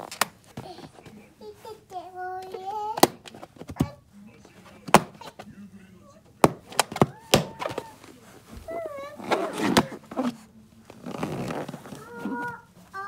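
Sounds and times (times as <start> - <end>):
taps on rubber balloon: 2.9 - 4.0
wavering balloon squeaks: 6.9 - 13.0.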